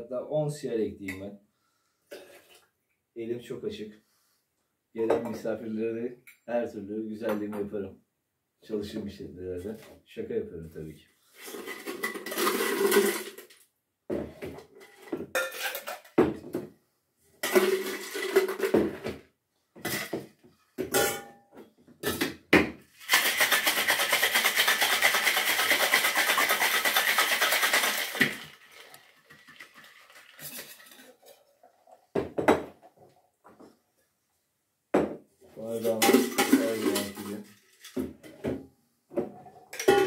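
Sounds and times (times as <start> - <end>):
steel tins and ice clinking: 11.4 - 13.5, 14.8 - 16.2, 17.4 - 18.9, 20.9 - 21.4, 23.0 - 31.6, 35.8 - 38.0, 39.7 - 40.0
ice rattling in shaker: 11.4 - 13.6, 17.4 - 18.8, 23.0 - 31.6, 35.9 - 38.0
tins clanking apart: 11.4 - 13.6, 14.8 - 16.2, 17.4 - 18.8, 23.0 - 31.4, 35.9 - 38.0.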